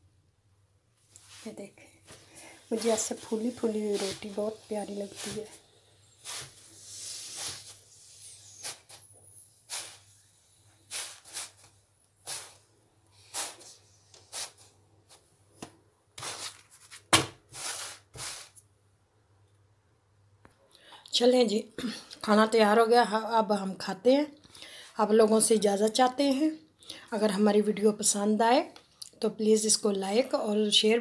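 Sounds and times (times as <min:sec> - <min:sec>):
cloth swishing on roti: 0:02.7 - 0:05.6, 0:06.2 - 0:09.0, 0:10.9 - 0:11.7.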